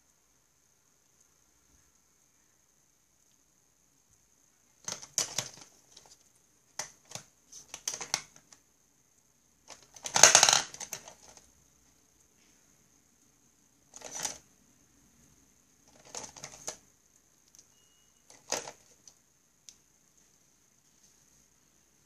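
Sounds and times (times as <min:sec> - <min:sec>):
faint high-pitched whine: 0:00.0 - 0:22.0
plastic pens clattering: 0:04.8 - 0:06.2, 0:06.8 - 0:08.6, 0:09.7 - 0:11.5, 0:13.9 - 0:14.4, 0:15.9 - 0:16.8, 0:18.3 - 0:19.2.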